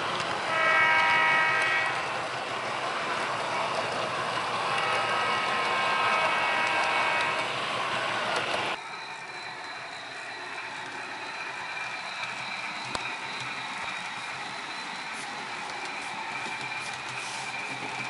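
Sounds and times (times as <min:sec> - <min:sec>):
model train running on track: 0:00.0 - 0:18.0.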